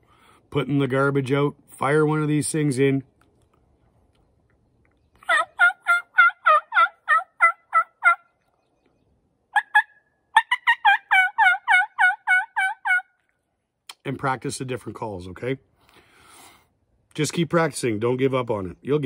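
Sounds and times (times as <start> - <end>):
turkey call imitating a hen: 5.2 - 8.3, 9.6 - 13.1.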